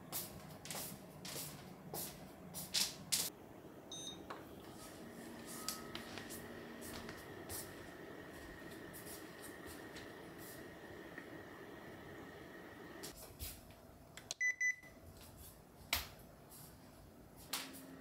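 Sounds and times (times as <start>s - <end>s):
faint high-pitched tone: 5.4s - 6.2s.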